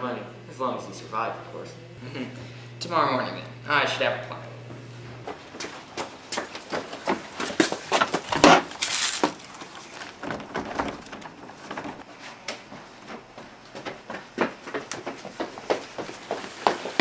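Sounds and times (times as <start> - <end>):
footstep scuffs and rustles: 4.7 - 17.0
scraping rustle: 7.8 - 12.4.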